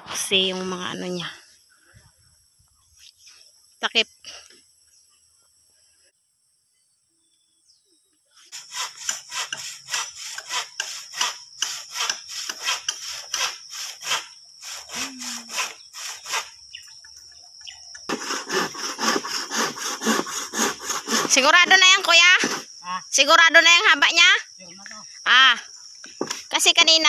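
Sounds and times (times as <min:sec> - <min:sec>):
handsaw cutting bamboo: 0:08.5 - 0:16.6, 0:18.1 - 0:22.7.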